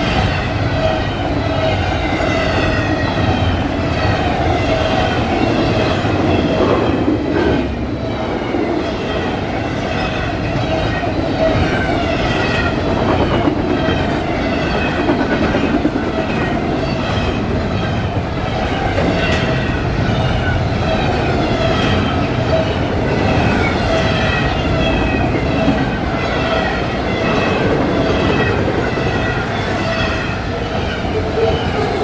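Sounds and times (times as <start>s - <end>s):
steel wheels on rail: 0.0s - 32.0s.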